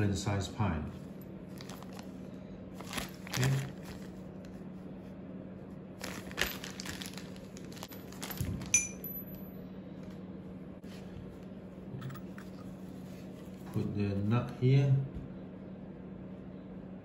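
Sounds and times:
plastic packet crinkling: 1.5 - 2.2, 2.8 - 4.2, 6.0 - 8.8
metal fittings clinking: 8.2 - 9.3.

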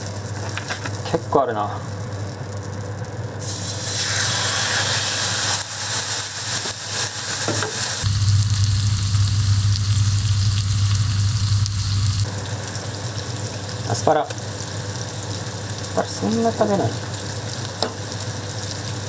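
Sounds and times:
steak sizzling in a frying pan: 3.4 - 19.0
low steady hum: 8.0 - 13.3.

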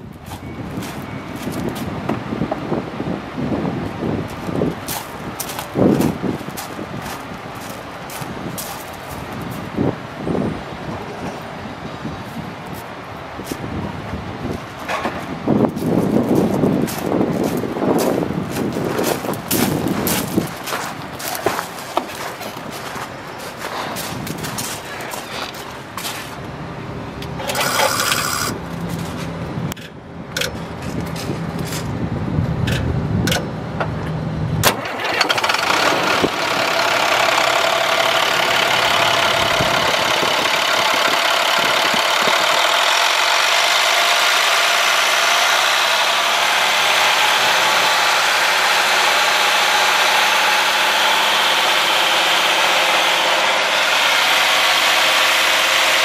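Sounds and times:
diesel engine running unevenly: 0.0 - 56.0
engine hiss: 15.6 - 29.5, 34.6 - 56.0.

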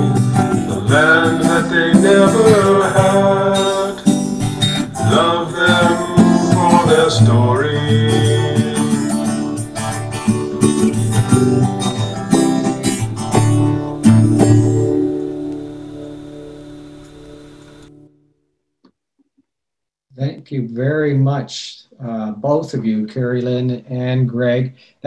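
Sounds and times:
person singing: 0.0 - 14.5
acoustic guitar strumming: 0.0 - 18.2.

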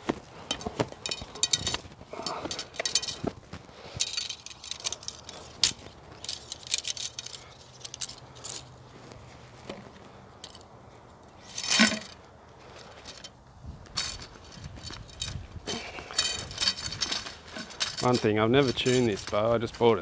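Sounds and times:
arrows scraping and clinking: 0.4 - 8.8, 9.6 - 10.7, 11.3 - 20.0.

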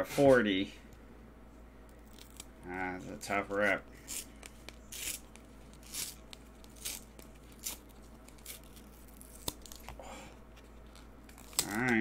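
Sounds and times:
card stock ripping: 2.0 - 2.8, 3.6 - 10.0, 10.8 - 12.0.

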